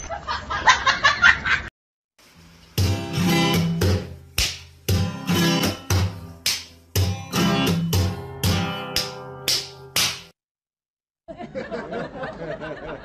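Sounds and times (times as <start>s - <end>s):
plucked guitar tune: 2.8s - 10.3s.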